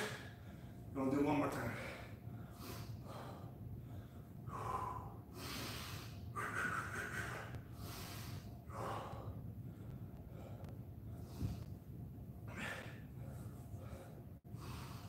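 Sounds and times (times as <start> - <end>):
man breathing hard: 0.0 - 0.9, 1.7 - 15.0.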